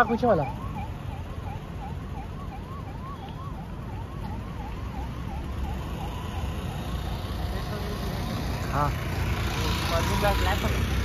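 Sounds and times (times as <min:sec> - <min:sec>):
distant siren yelping: 0:00.0 - 0:08.1
low traffic rumble: 0:00.0 - 0:11.0.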